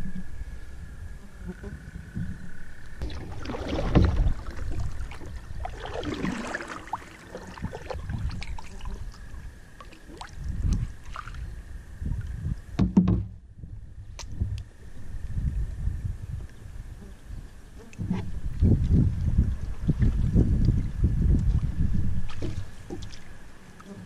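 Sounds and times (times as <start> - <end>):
paddle splashing in water: 3.0 - 11.5, 21.4 - 24.0
sharp knocks: 12.8 - 13.4.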